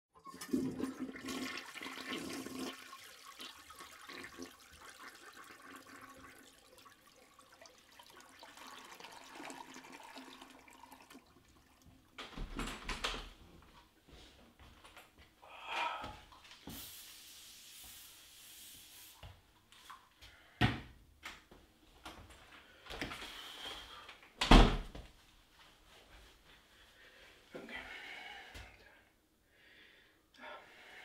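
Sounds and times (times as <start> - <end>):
toilet flushing: 0.2 - 12.2
door rattle and thud: 12.2 - 13.4, 24.4 - 24.9.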